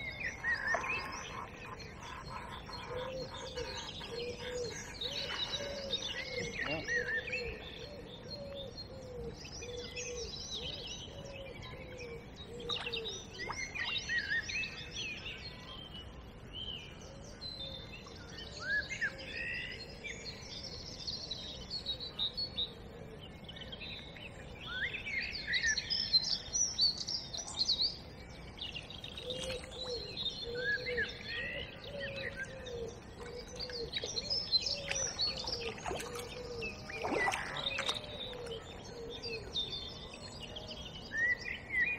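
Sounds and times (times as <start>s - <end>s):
songbirds chirping and trilling: 0.0s - 41.9s
low cooing call: 0.1s - 13.1s.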